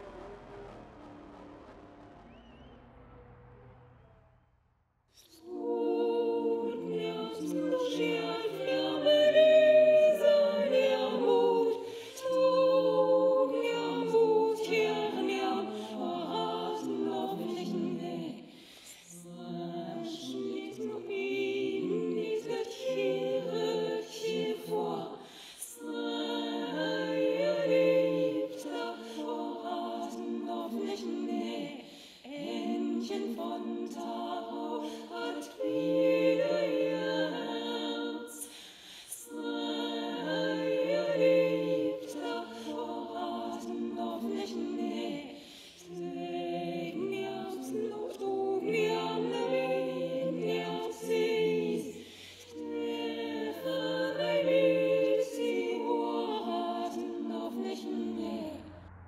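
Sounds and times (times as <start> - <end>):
faint low drone: 0.0 - 5.6, 58.1 - 59.0
unaccompanied voices singing chords: 5.2 - 59.0.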